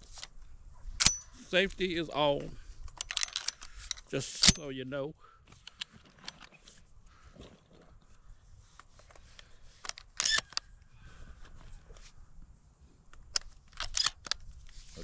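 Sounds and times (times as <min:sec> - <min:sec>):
handling clicks and rustles: 0:00.0 - 0:04.8, 0:05.4 - 0:12.3, 0:13.0 - 0:15.0.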